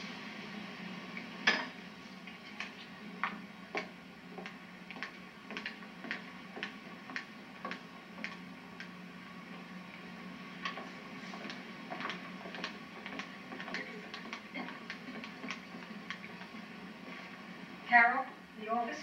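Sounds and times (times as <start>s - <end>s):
steady low hum: 0.0s - 19.0s
footsteps on wooden floor: 3.2s - 8.4s, 10.6s - 17.4s.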